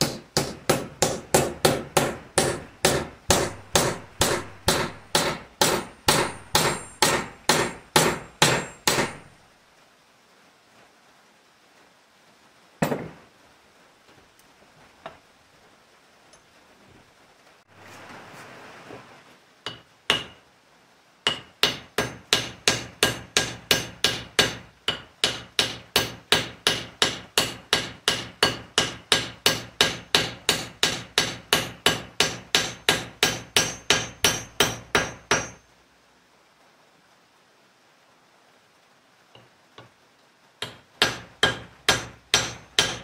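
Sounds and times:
hammer striking metal: 0.0s - 9.3s, 19.7s - 20.4s, 21.3s - 35.6s, 40.6s - 43.0s.

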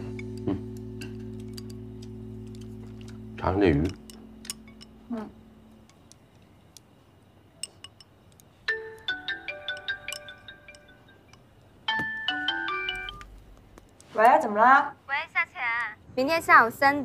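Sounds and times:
marimba ringtone: 8.7s - 11.4s, 12.0s - 13.2s.

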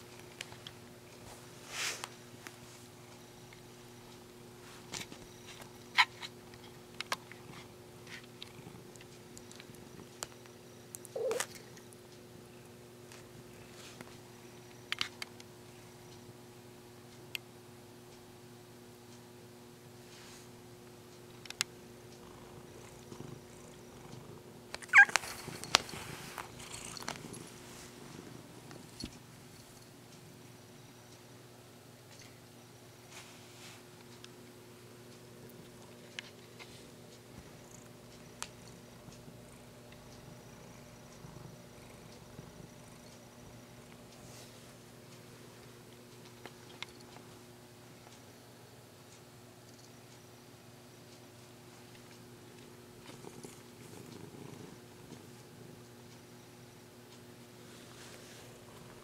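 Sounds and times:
cat purring: 5.1s - 10.4s, 11.0s - 11.9s, 21.9s - 30.4s, 35.3s - 44.6s, 52.4s - 56.8s, 57.6s - 59.0s.

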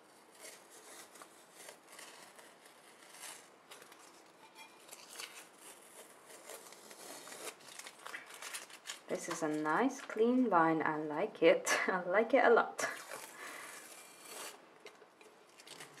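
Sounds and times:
tape peeling off glass: 0.4s - 9.4s.

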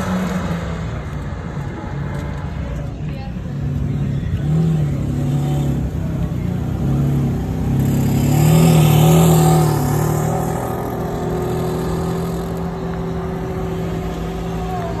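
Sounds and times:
car engine revving away: 4.4s - 15.0s.

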